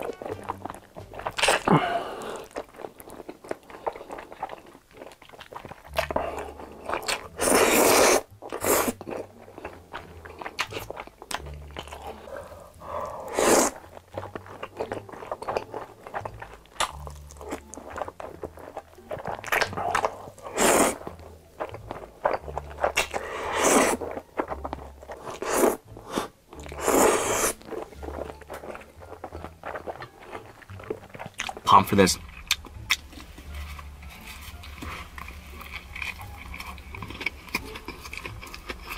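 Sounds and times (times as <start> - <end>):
noodles slurped: 0.0 - 33.1
wet mouth clicks: 0.4 - 1.7, 13.3 - 17.8, 18.4 - 31.6, 32.2 - 33.1.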